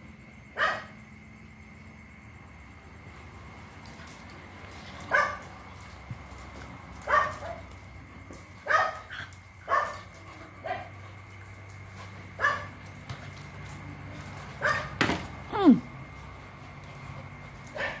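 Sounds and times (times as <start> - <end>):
dogs barking: 0.6 - 1.0, 5.0 - 5.6, 6.9 - 7.8, 8.6 - 11.2, 12.1 - 13.0, 14.5 - 15.0, 17.6 - 18.0.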